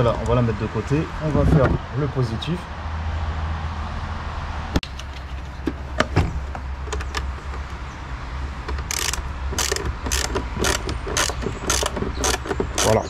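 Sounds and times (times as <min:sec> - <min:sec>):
ratchet wrench clicking: 0:08.8 - 0:13.0.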